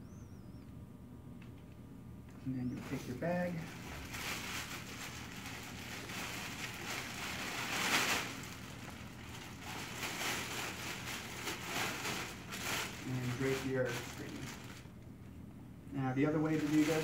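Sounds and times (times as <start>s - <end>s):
plastic bag rustling: 2.8s - 15.0s, 16.3s - 17.0s.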